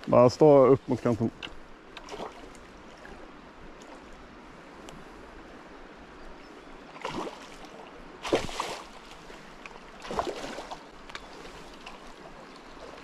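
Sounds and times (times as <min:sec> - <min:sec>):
fish splashing in shallow water: 0:01.9 - 0:04.1, 0:06.8 - 0:13.0.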